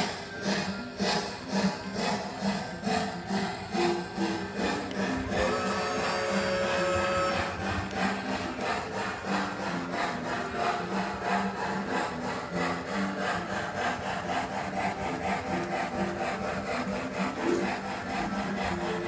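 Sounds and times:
model steam locomotive chuffing: 0:00.0 - 0:19.0
wheels rolling on rails: 0:00.0 - 0:19.0.

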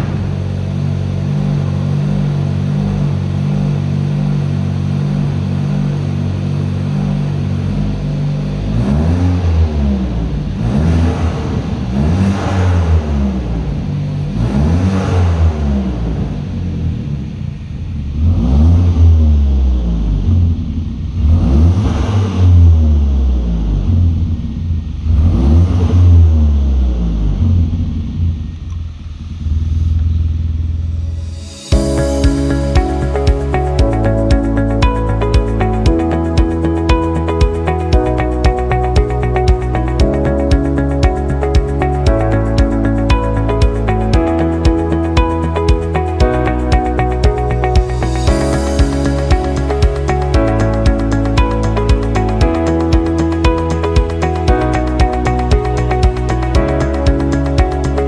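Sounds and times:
car engine idling and revving: 0:00.0 - 0:58.0.

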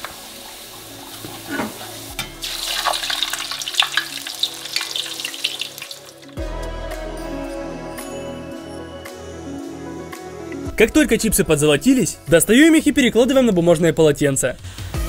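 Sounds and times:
dough sizzling in hot oil: 0:00.0 - 0:06.4
background music: 0:00.0 - 0:15.0.

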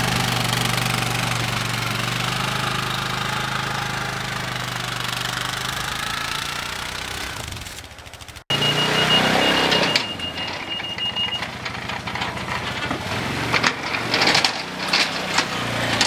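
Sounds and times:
atv engine running: 0:00.0 - 0:16.0
clicks and rattles: 0:09.7 - 0:16.0.

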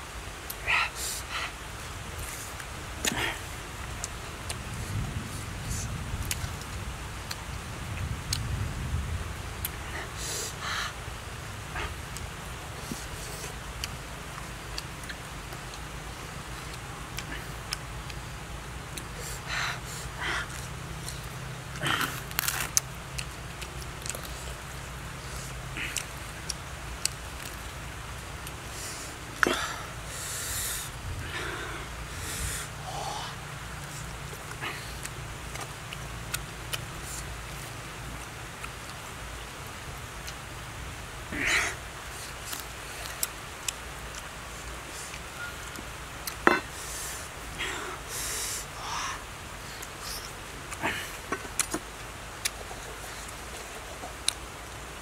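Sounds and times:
breathy sniff: 0:00.6 - 0:03.6, 0:28.6 - 0:35.0, 0:46.4 - 0:51.4
wet mouth clicks chewing: 0:11.7 - 0:18.2, 0:20.4 - 0:27.7, 0:44.9 - 0:46.8, 0:51.2 - 0:54.8
wet mouth clicks while chewing: 0:51.3 - 0:54.8.

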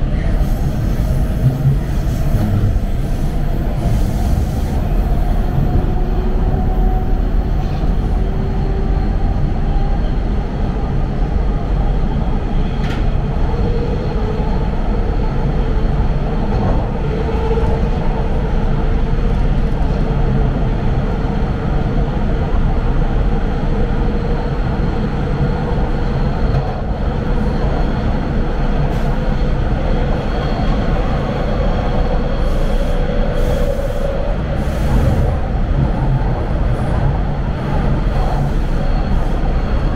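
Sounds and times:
rumble of wheels on track: 0:00.0 - 0:39.9
faint train whine: 0:21.7 - 0:39.9.

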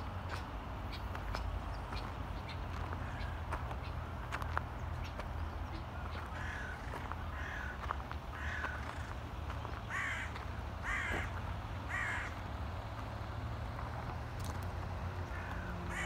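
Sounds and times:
crow cawing: 0:06.3 - 0:09.2, 0:09.9 - 0:12.4, 0:15.3 - 0:16.0.

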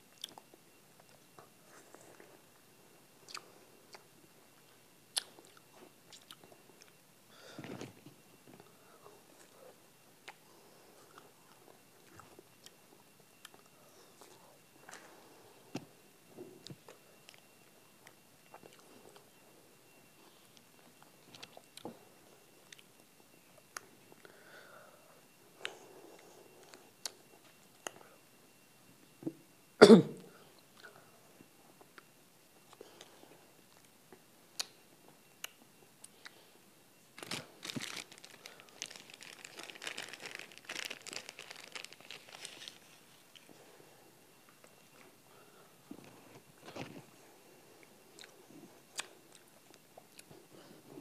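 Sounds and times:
plastic wrapper crinkling and tearing: 0:37.2 - 0:43.2.

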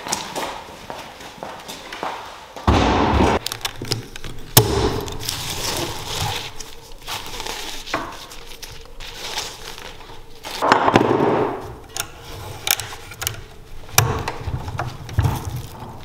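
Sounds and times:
strap webbing rasping: 0:03.5 - 0:10.6.

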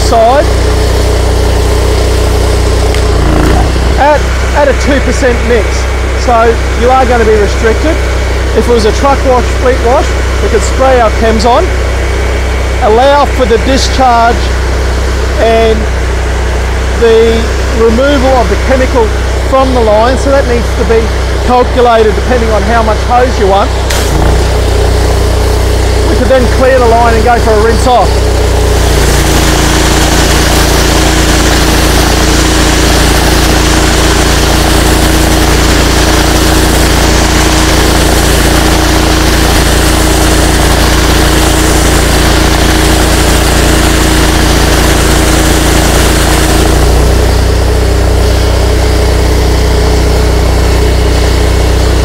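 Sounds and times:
pressure washer engine running: 0:00.0 - 0:52.0
high-pressure spray hissing: 0:23.8 - 0:27.2, 0:27.8 - 0:48.9.

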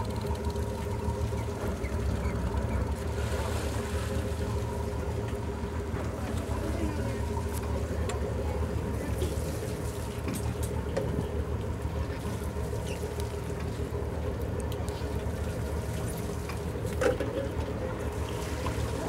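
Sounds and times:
boat engine humming: 0:00.0 - 0:19.0
water sloshing against hull: 0:00.0 - 0:19.0
faint clicks: 0:12.8 - 0:15.1.

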